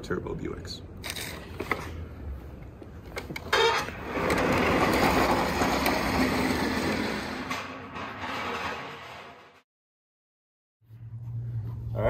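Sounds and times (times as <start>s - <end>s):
pallet jack wheels rumbling: 3.3s - 9.6s.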